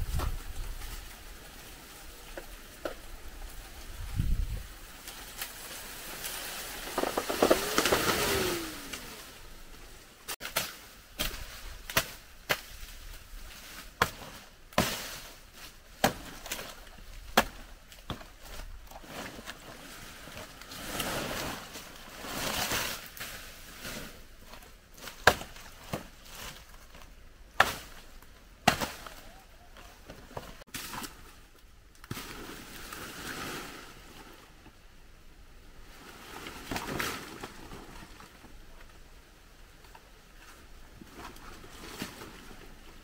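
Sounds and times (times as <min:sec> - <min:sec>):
rustling swishes: 0:00.0 - 0:15.8
blade chopping plant: 0:06.2 - 0:09.4.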